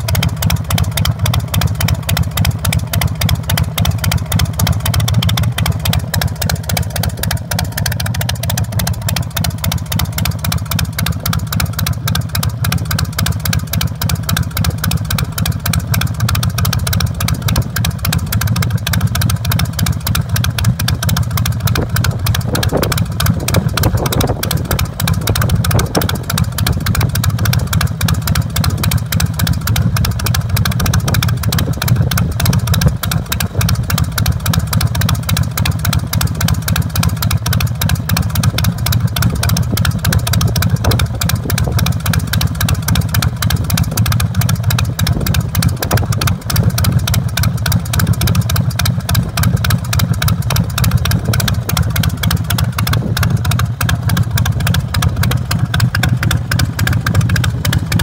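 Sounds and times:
motorcycle engine idling: 0.0 - 58.0.

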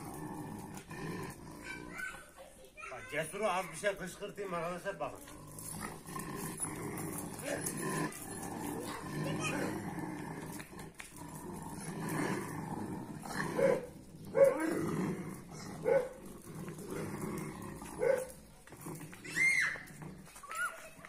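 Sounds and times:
dogs growling: 0.0 - 2.4, 4.5 - 21.0
dog barking: 13.6 - 14.7, 15.8 - 16.2, 18.0 - 18.3
dog whining: 19.0 - 21.0.

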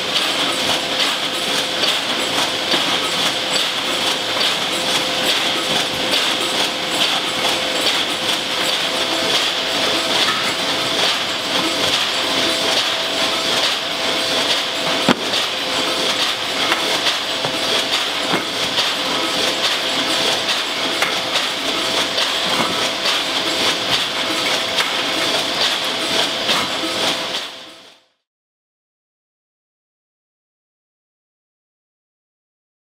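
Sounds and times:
conveyor machine noise: 0.0 - 28.0
metal cans clinking and rattling: 15.0 - 26.6.

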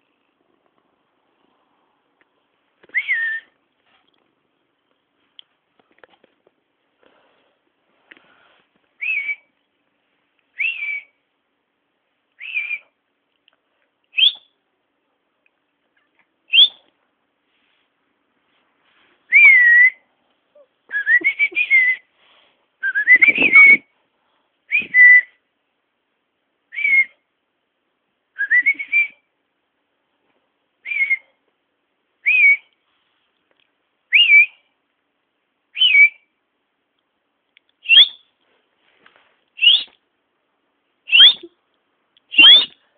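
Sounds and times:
person whistling short high notes: 22.9 - 23.8, 39.6 - 40.0, 41.1 - 41.5, 42.3 - 42.8.

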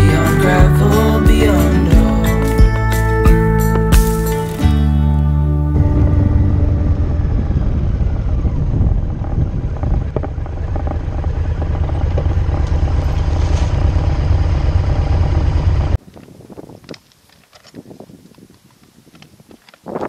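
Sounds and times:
quiet roadside sound: 0.0 - 20.0
motorcycle engine running: 5.6 - 16.0.

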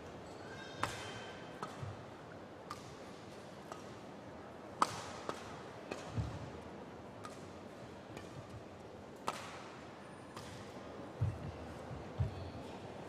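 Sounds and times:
faint murmur of hall: 0.0 - 13.0
rackets striking shuttlecock: 2.7 - 3.0.

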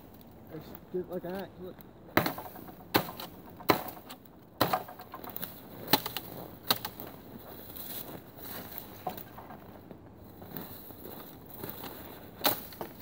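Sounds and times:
twig crackles: 0.0 - 13.0.

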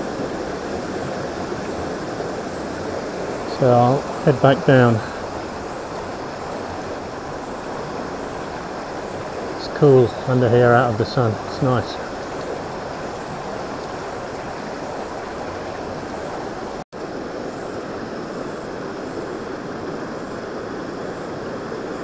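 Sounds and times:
stream water rushing over rocks: 0.0 - 22.0.

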